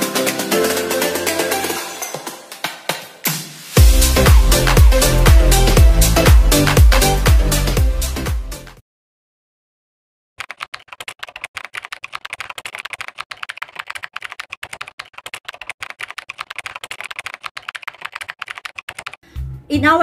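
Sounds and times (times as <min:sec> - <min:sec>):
music: 0:00.0 - 0:08.8, 0:19.2 - 0:20.0
keyboard typing clicks: 0:10.4 - 0:19.2.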